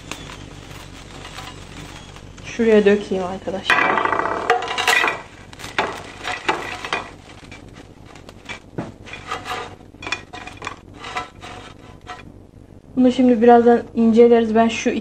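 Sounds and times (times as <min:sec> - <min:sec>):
small clicks taps and scrapes: 0:00.0 - 0:02.5
fries rattling onto plate: 0:00.0 - 0:12.3.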